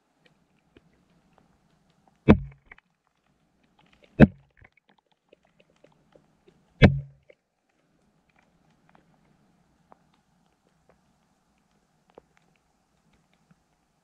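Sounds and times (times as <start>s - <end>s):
faint small ticks: 0.0s - 14.0s
low thud: 2.3s - 2.6s, 6.8s - 7.2s.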